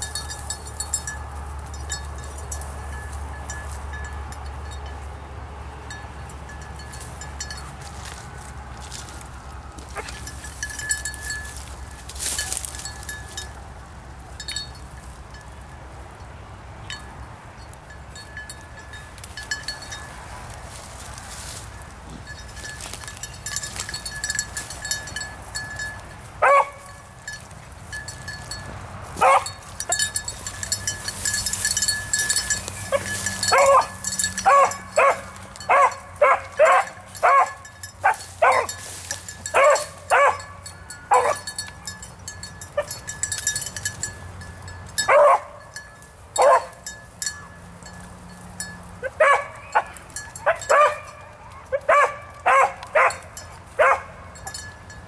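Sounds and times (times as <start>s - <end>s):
beagle baying: 26.4s - 26.9s, 29.2s - 29.6s, 32.4s - 38.8s, 39.5s - 41.5s, 45.1s - 45.6s, 46.4s - 46.8s, 49.0s - 54.3s.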